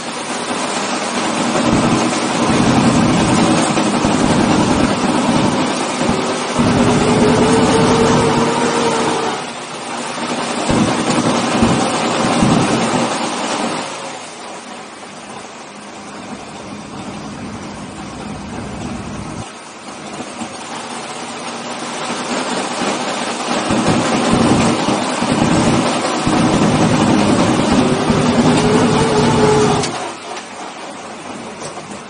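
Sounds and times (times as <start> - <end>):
truck engine revving and idling: 1.2 - 14.0, 23.6 - 30.4.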